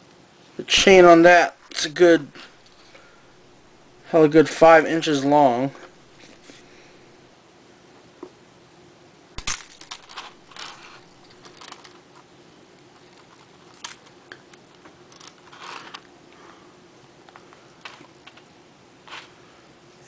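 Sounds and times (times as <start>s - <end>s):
plastic toy parts clicking: 9.4s - 12.0s.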